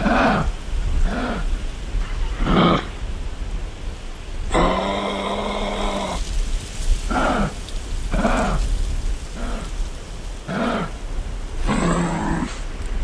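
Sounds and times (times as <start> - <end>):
kangaroo calls: 7.1 - 9.8.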